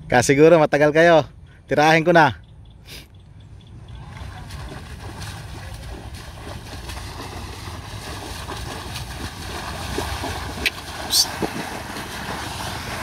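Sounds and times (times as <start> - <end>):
wind buffeting microphone: 3.8 - 13.0.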